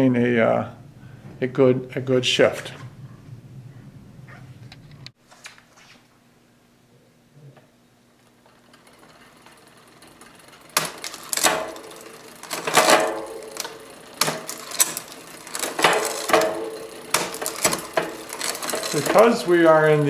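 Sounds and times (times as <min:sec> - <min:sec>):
bicycle chain whirring and clicking: 0:08.2 - 0:20.0.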